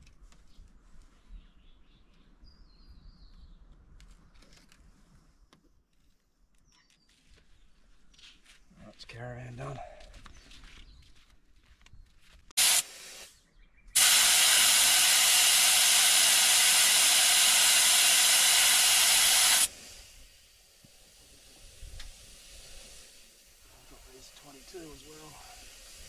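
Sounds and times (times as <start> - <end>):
air hissing from tyre valve: 12.6 - 13.4, 14.0 - 26.0.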